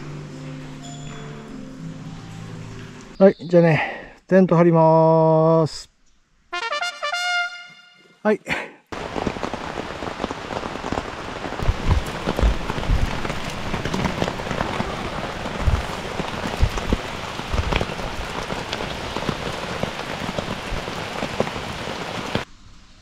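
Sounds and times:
heavy rain: 8.5s - 22.5s
low thumps: 11.6s - 18.9s.

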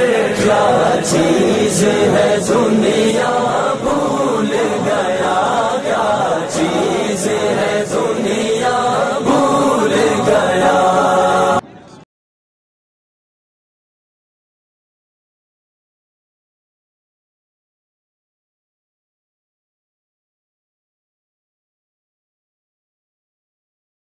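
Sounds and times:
choir-like backing: 0.0s - 11.9s
person chanting: 0.0s - 12.0s.

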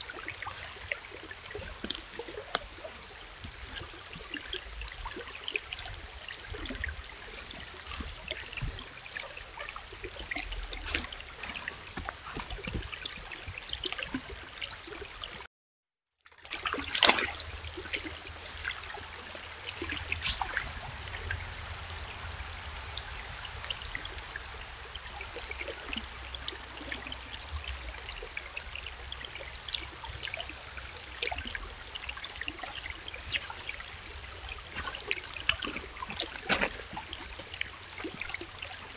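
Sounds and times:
stream babbling over rocks: 0.0s - 15.4s, 16.4s - 38.9s.

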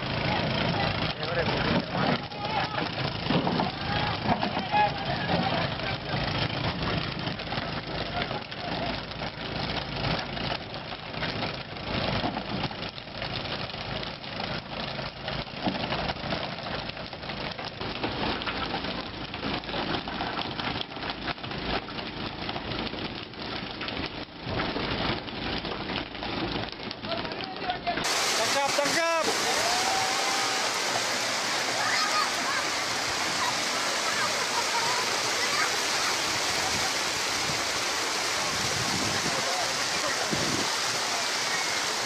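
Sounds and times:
boat engine running: 0.0s - 42.0s
water splashing: 28.0s - 42.0s.

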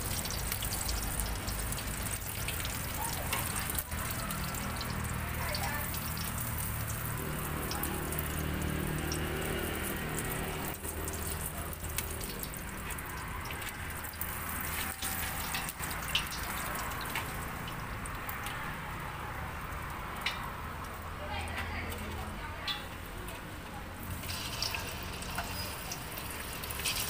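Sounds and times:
hot oil sizzling in a pot: 0.0s - 27.0s
metal tongs clicking against pot: 14.7s - 17.8s.

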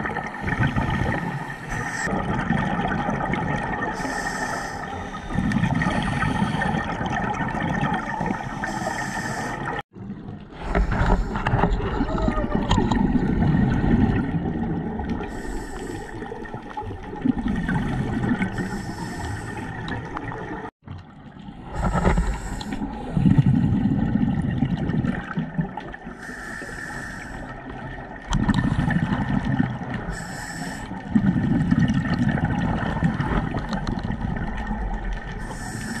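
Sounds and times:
gurgling exhaled bubbles: 0.0s - 36.0s
regulator hiss on inhale: 4.0s - 5.2s, 8.6s - 9.8s, 15.3s - 16.2s, 18.5s - 19.7s, 21.8s - 23.0s, 26.2s - 27.5s, 30.1s - 31.0s, 35.4s - 36.0s.

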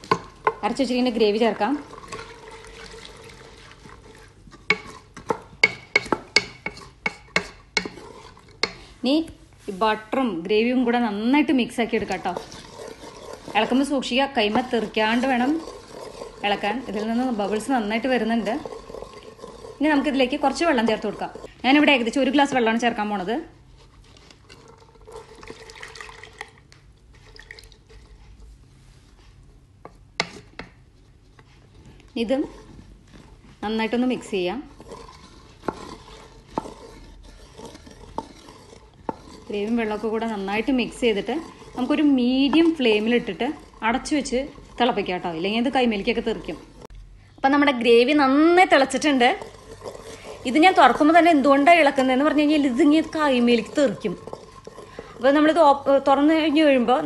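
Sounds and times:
paste frying in butter: 0.0s - 9.0s, 10.7s - 28.2s, 32.1s - 46.9s, 48.0s - 57.0s
spatula knocking against pot: 4.7s - 8.0s
gravy bubbling: 12.0s - 21.5s, 32.4s - 46.9s
water pouring into gravy: 25.1s - 26.6s.

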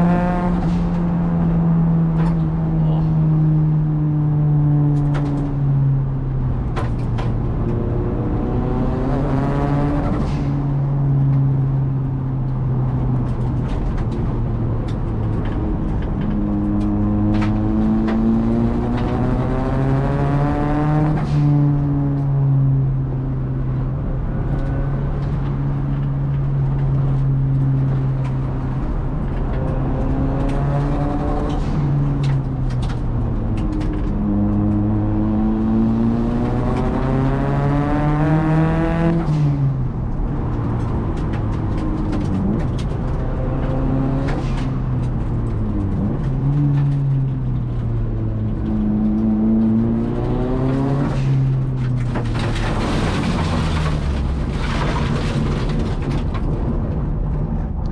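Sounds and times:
turbocharged car engine revving: 14.8s - 21.8s, 27.8s - 55.4s.

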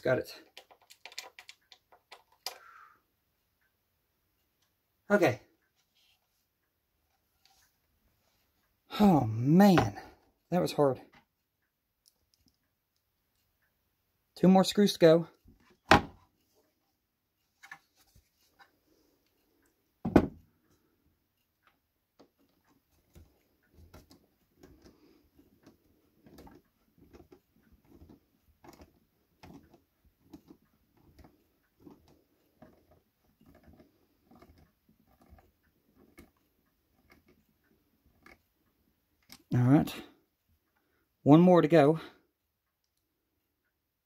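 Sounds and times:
screw creaking and clicking: 0.4s - 2.7s, 25.6s - 36.4s.

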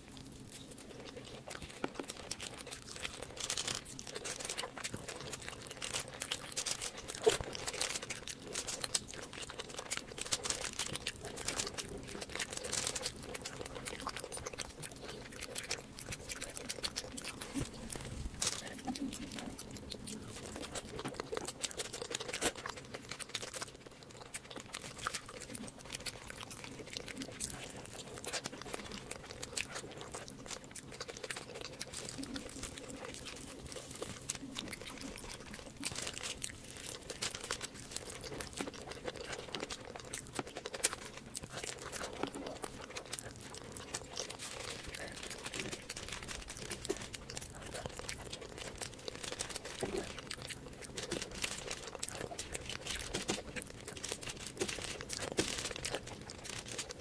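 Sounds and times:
wet chewing: 0.0s - 57.0s
bread tearing: 0.6s - 57.0s
foil plates crinkling: 27.0s - 57.0s.

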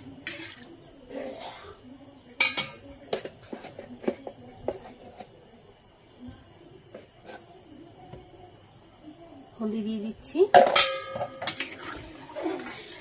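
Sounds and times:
metal ladle clanking on pot: 2.4s - 3.3s, 10.5s - 11.9s.

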